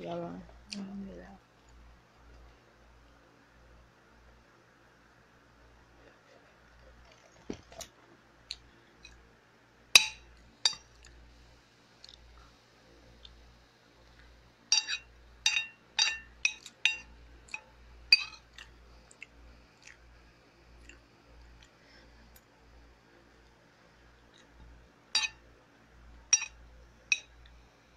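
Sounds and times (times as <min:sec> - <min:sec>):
metal spoon clinking on dish: 0:10.0 - 0:10.9, 0:14.7 - 0:18.5, 0:25.2 - 0:25.4, 0:26.3 - 0:27.4.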